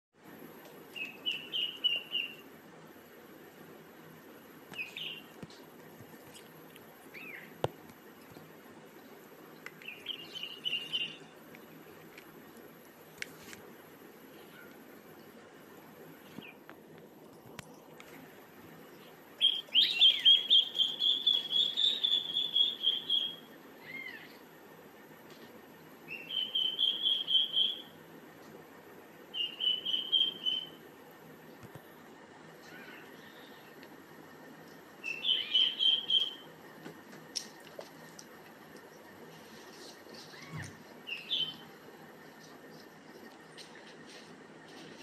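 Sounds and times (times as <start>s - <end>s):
faint steady hiss: 0.2s - 45.0s
high-pitched chirping calls: 0.9s - 2.5s, 4.8s - 5.3s, 9.8s - 11.3s, 19.4s - 24.4s, 26.1s - 28.0s, 29.3s - 30.8s, 35.0s - 36.5s, 40.2s - 41.7s
young animal crying: 32.6s - 33.7s, 40.2s - 40.8s.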